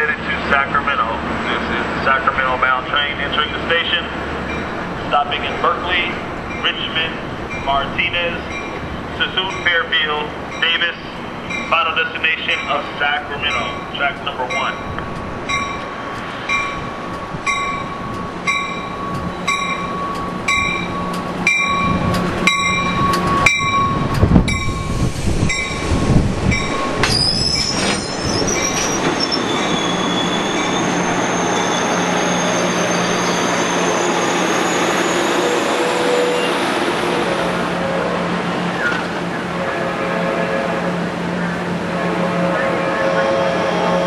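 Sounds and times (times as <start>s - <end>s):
diesel locomotive hum: 0.0s - 44.0s
locomotive rumbling past: 0.0s - 44.0s
train bell ringing: 4.4s - 36.6s
wheel and brake squeal: 26.9s - 36.7s.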